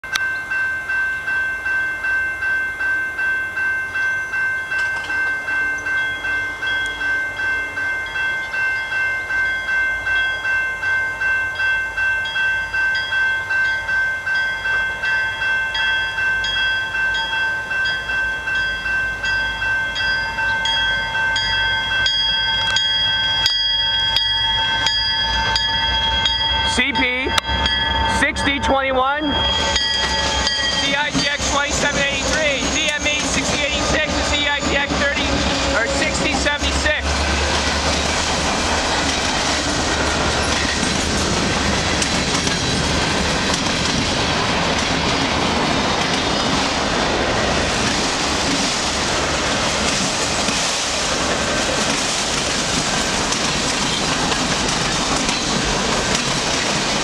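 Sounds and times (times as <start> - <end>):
level crossing bell ringing: 0.0 - 37.5
locomotive rumble: 13.8 - 57.0.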